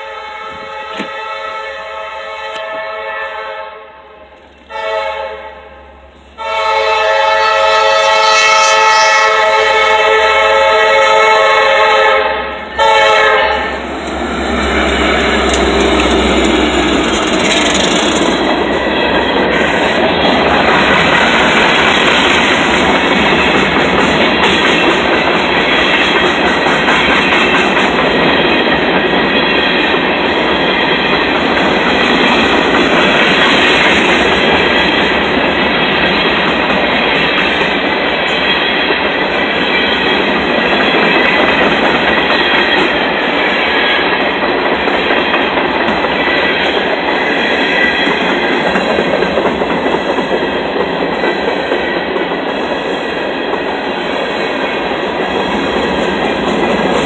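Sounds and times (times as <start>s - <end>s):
locomotive air horn: 0.0s - 18.1s
train rumbling past: 0.0s - 57.0s
wheels clattering on rails: 13.8s - 57.0s.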